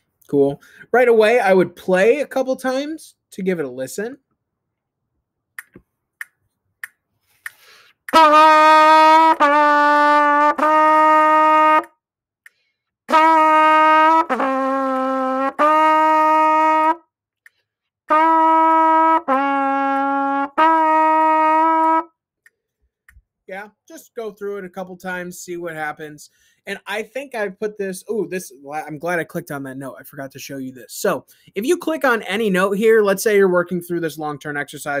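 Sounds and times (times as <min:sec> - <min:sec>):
trumpet sustained notes: 0:08.1 - 0:11.9, 0:13.1 - 0:17.0, 0:18.1 - 0:22.1.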